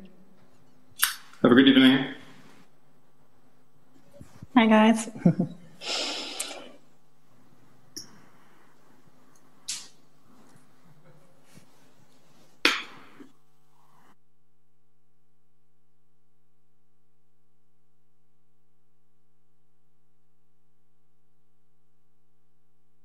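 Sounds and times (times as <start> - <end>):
steady electrical hum: 0.0 - 23.0.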